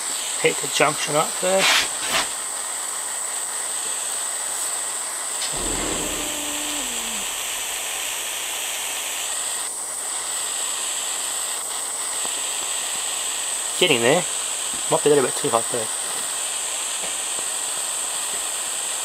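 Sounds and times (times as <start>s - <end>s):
soft low thump: 5.6s - 8.2s.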